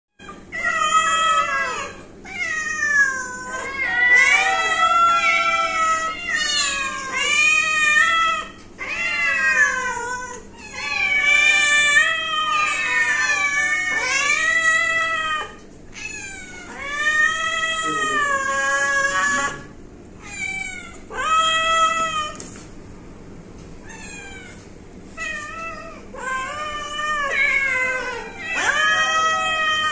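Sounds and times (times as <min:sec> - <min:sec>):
cats meowing: 0:00.2 - 0:22.7, 0:23.8 - 0:29.9.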